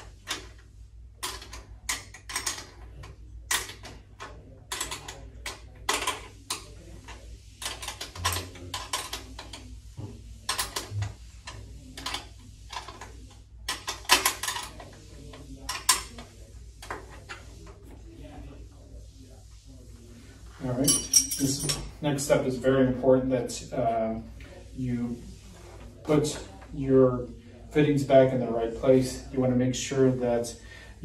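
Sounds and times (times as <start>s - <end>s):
wrench clicking and clinking: 20.8s - 21.8s.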